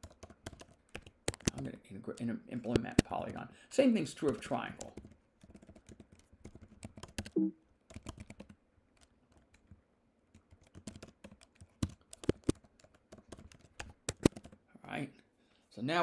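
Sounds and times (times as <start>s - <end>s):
keyboard key clicks: 0.0s - 1.7s, 2.6s - 3.4s, 10.6s - 14.6s.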